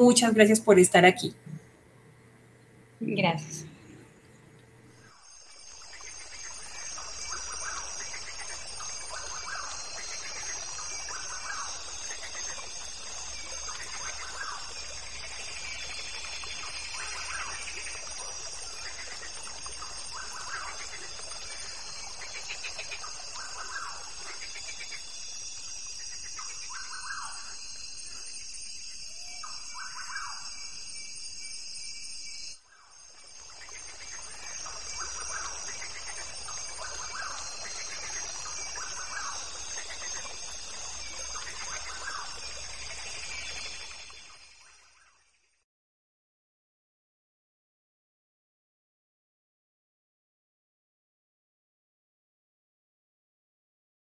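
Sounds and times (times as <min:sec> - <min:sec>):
high-pitched hum: 0:00.0 - 0:05.7.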